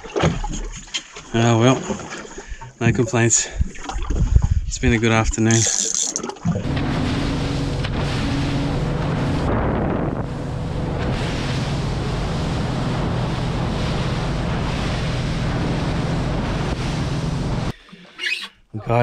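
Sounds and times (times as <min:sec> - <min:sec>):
water rushing past the hull: 0:00.0 - 0:19.0
wind buffeting the microphone: 0:03.5 - 0:05.5, 0:06.6 - 0:17.7
boat engine hum: 0:05.5 - 0:19.0.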